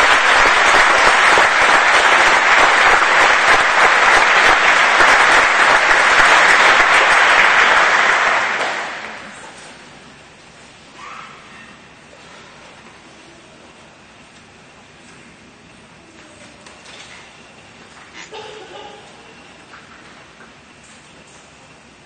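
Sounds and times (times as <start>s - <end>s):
audience applause: 0.0s - 9.9s.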